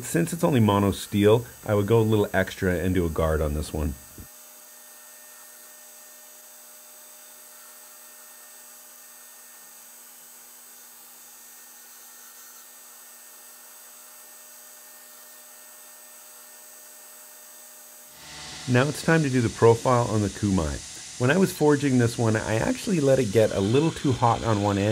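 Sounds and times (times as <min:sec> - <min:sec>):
electrical hum: 0:00.0 - 0:04.3, 0:18.2 - 0:24.9
faint hiss: 0:18.2 - 0:24.9.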